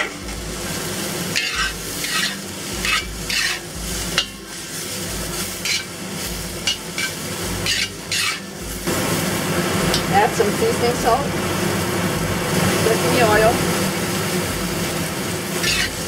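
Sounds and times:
metal spatula scraping wok: 0.0s - 9.2s, 14.4s - 16.0s
mushrooms sizzling in a wok: 0.0s - 16.0s.

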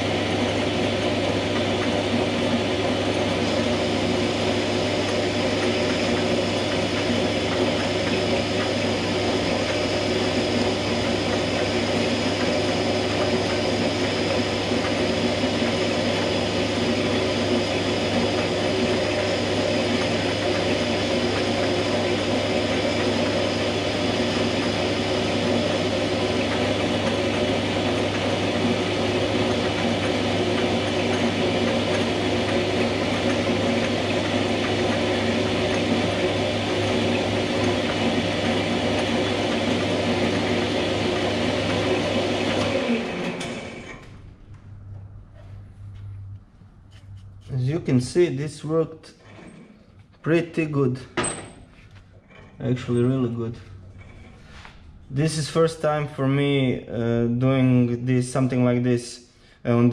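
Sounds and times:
metal lathe humming: 0.0s - 45.5s.

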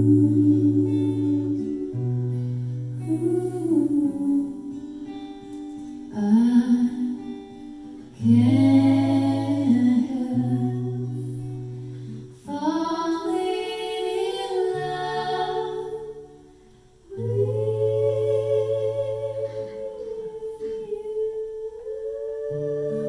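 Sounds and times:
women singing in harmony: 0.0s - 2.4s, 3.0s - 5.0s, 6.1s - 7.5s, 8.1s - 11.8s, 12.4s - 23.0s
acoustic guitar chords: 0.0s - 23.0s.

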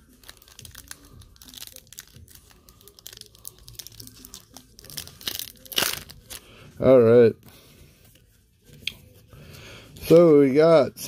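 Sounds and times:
plastic wrapper crinkling and tearing: 0.0s - 7.0s.

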